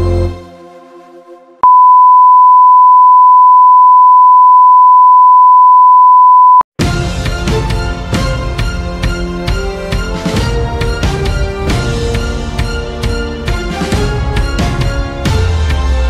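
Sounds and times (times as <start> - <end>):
music: 0.0 - 1.6, 6.8 - 16.0
broadcast test tone: 1.6 - 6.6.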